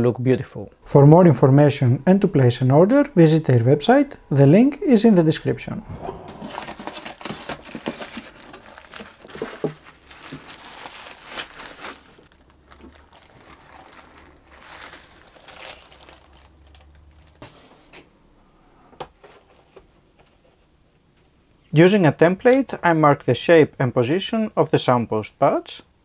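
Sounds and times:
paper and plastic crinkling: 6.3 - 17.9.

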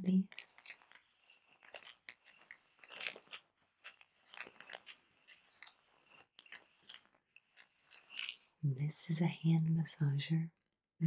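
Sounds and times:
roller massager clicking and tapping: 0.4 - 8.5.

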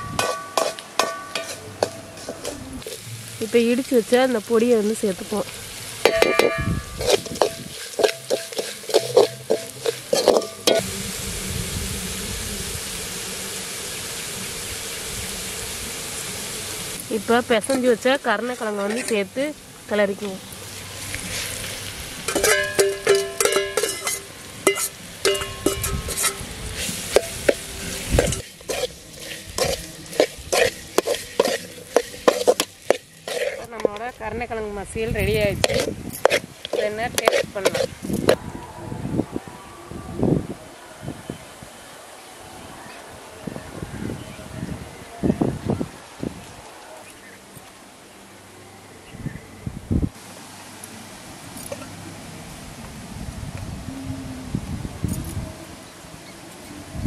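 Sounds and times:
ladle scraping in pan: 0.0 - 3.0, 6.0 - 10.8, 20.6 - 34.0, 35.3 - 38.4
onions sizzling in oil: 0.0 - 38.4.

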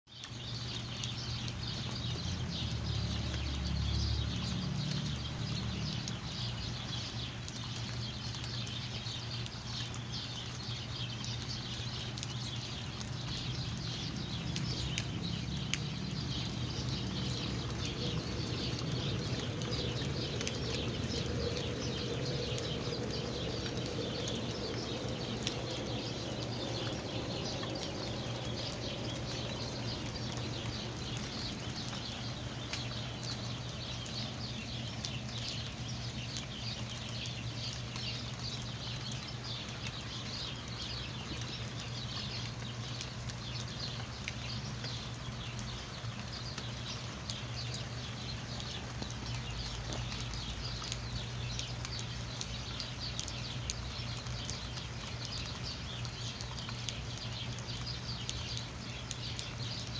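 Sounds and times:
small birds chirping chorus: 0.1 - 59.9
faint ticks: 1.0 - 34.3.

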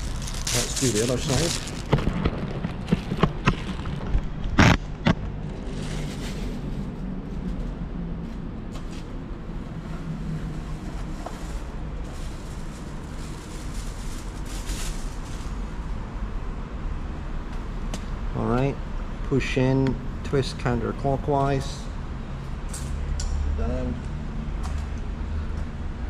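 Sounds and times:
camera knocks and clacks: 1.9 - 5.3.

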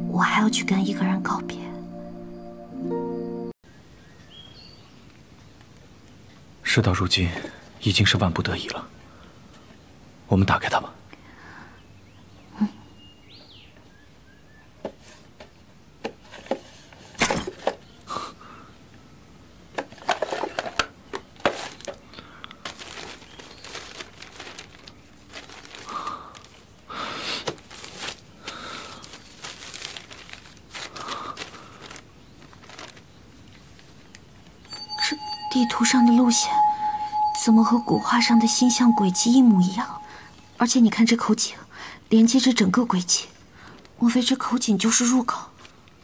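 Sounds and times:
paper rustling and crinkling: 19.9 - 34.2.

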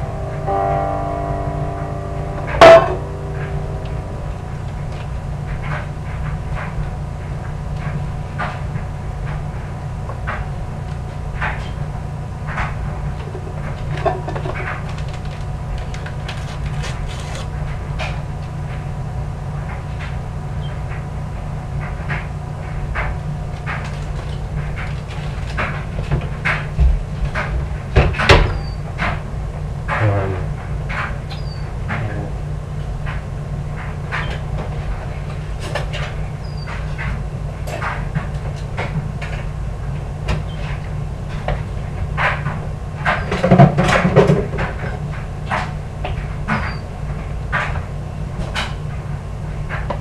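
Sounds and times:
loud knock: 0.0 - 5.2
steady low hum: 0.0 - 50.0.

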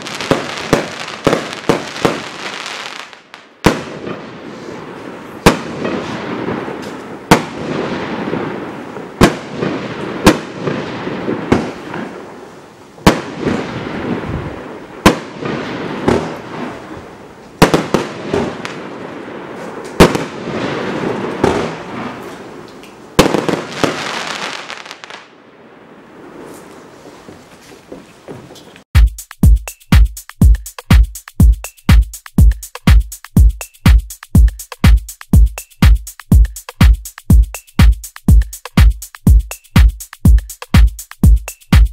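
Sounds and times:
firework bangs: 0.0 - 25.3
crackling hiss of firework stars: 0.0 - 25.4, 26.0 - 27.9.

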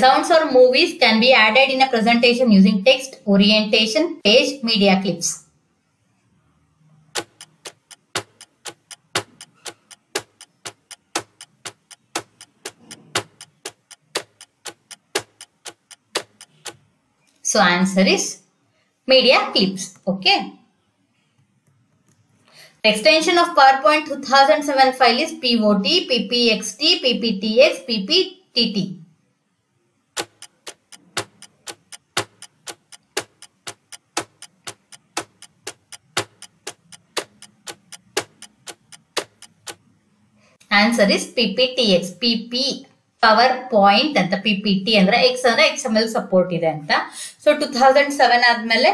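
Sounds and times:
countdown timer ticking: 7.1 - 16.8, 30.2 - 39.8.

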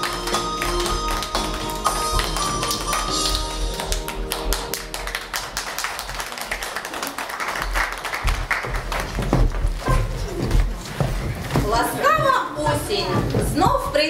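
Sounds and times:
dance music: 0.0 - 5.6
audience applauding: 0.0 - 9.3.

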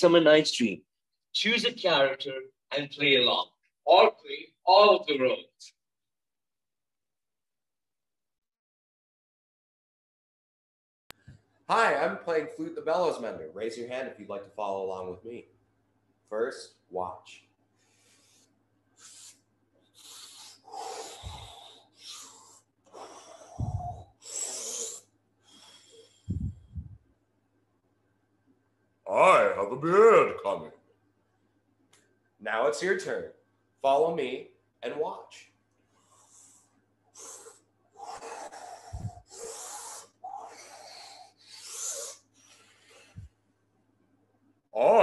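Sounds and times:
man blowing puffs of air: 17.8 - 27.0, 36.0 - 40.2, 41.4 - 43.4
breathy blowing whooshes: 21.1 - 21.6, 23.5 - 24.0, 26.3 - 27.0.

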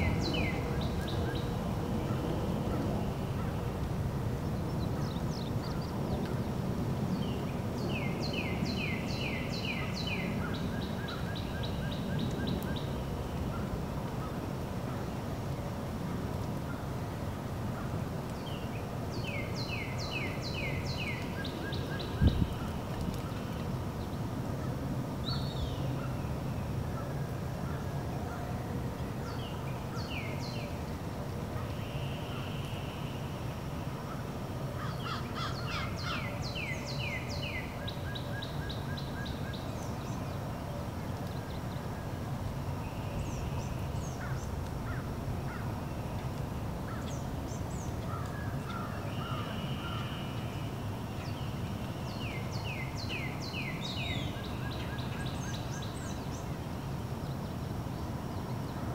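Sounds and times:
downward-sweeping whistled bird notes: 0.0 - 3.4
birds calling and singing: 0.0 - 3.6, 18.3 - 24.3, 34.8 - 42.0, 46.9 - 58.9.

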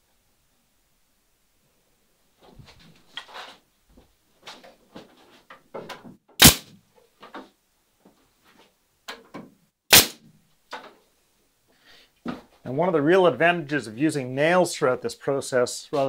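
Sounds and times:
pneumatic nailer firing: 6.4 - 6.7, 9.9 - 10.2
knocks and taps handling wood: 7.2 - 9.6.

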